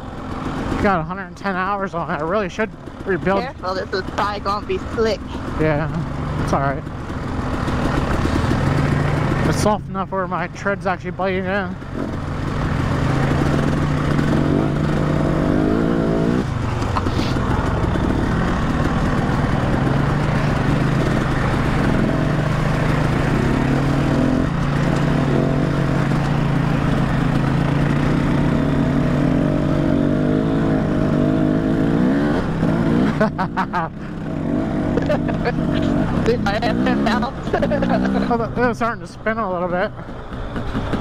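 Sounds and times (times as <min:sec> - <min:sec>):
dirt bike engine running: 0:00.0 - 0:41.0.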